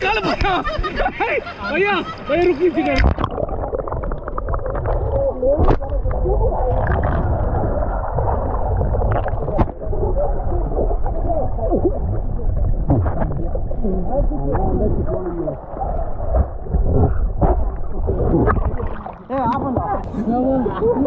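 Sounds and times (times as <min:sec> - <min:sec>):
gurgling bubbles: 0:02.8 - 0:20.1
muffled underwater rumble: 0:02.8 - 0:21.0
sharp underwater knocks: 0:02.9 - 0:06.0, 0:12.8 - 0:13.5, 0:16.3 - 0:20.1.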